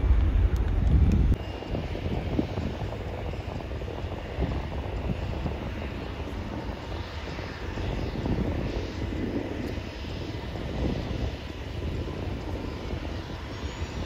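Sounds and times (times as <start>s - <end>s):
faint engine whine: 0.0s - 14.0s
jet engine rumble: 0.0s - 14.0s.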